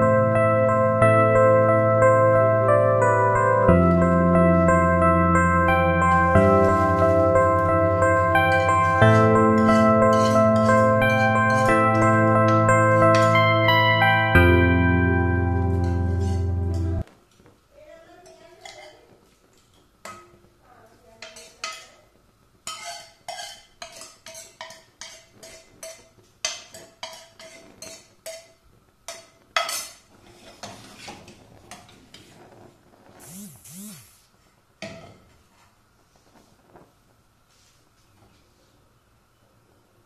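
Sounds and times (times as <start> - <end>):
spoon scraping pan: 8.2 - 13.6, 15.7 - 17.0, 18.2 - 20.2, 21.2 - 22.0, 22.6 - 32.6
spoon tapping metal pan: 8.3 - 13.7, 21.2 - 22.0, 22.7 - 28.5, 29.1 - 30.0.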